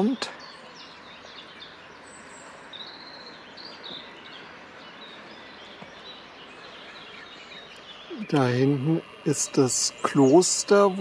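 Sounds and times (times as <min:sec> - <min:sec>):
low background hiss: 0:00.0 - 0:11.0
small birds chirping: 0:00.0 - 0:11.0.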